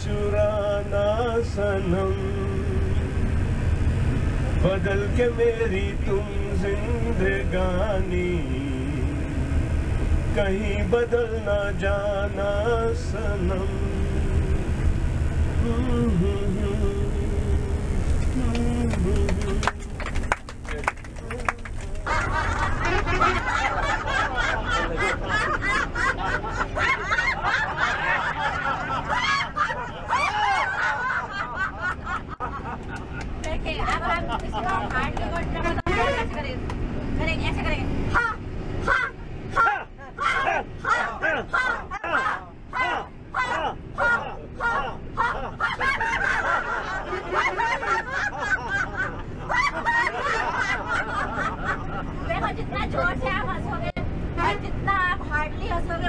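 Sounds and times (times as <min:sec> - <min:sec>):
low bus rumble: 0:00.0 - 0:56.0
group of people laughing: 0:21.8 - 0:36.2, 0:39.6 - 0:53.0.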